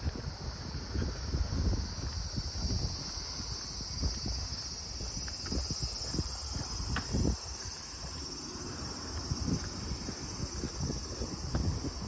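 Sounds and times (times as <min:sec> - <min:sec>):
insects chirring: 0:00.0 - 0:12.0
wind on microphone: 0:00.0 - 0:12.0
footsteps thumping: 0:03.5 - 0:08.3.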